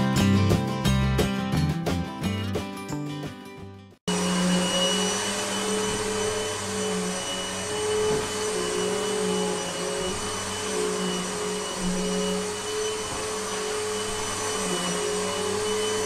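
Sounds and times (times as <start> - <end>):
guitar music: 0.0 - 4.0
vacuum cleaner running: 4.1 - 16.0.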